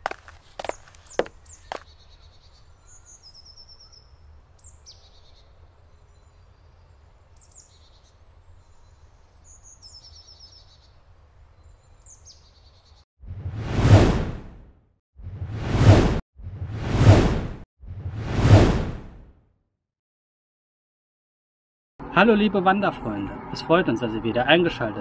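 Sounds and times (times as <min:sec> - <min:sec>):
songbird singing: 0:00.0 - 0:13.0.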